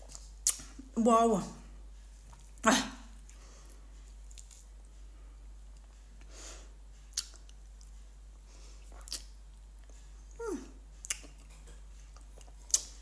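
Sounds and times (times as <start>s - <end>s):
chewing: 8.8s - 10.1s, 11.0s - 13.0s
person humming: 10.4s - 10.8s.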